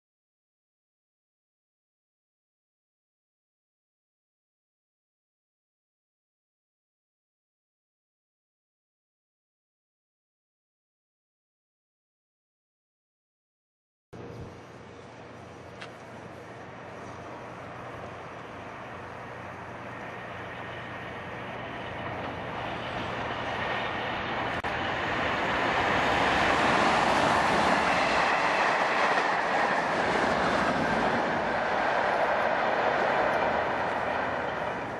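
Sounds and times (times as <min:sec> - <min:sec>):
diesel locomotives approaching: 0:14.2 - 0:34.9.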